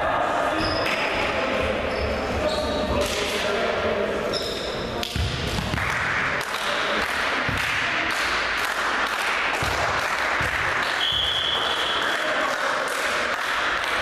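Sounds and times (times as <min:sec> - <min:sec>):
referee's whistle: 0:11.0 - 0:12.0.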